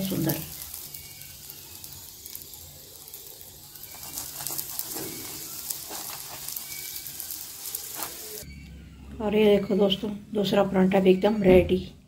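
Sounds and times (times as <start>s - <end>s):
ghee sizzling on a griddle: 0.0s - 8.5s
steel spoon scraping: 0.1s - 8.5s.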